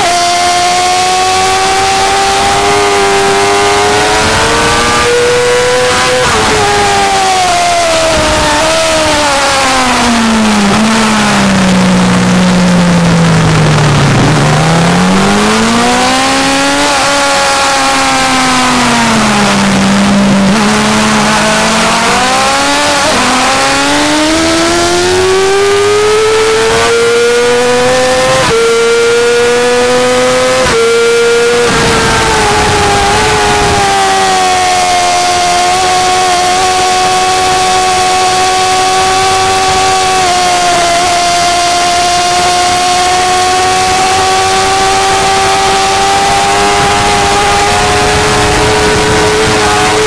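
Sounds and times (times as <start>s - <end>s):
motorcycle engine revving: 0.0s - 50.0s
wind rush: 3.0s - 11.5s, 46.1s - 50.0s.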